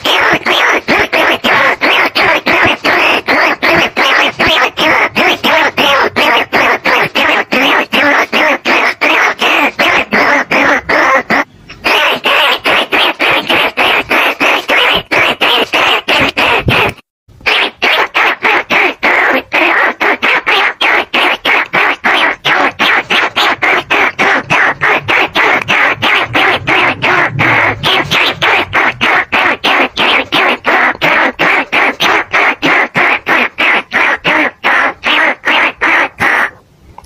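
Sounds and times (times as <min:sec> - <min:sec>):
shrill rodent squeaks: 0:00.0 - 0:16.9.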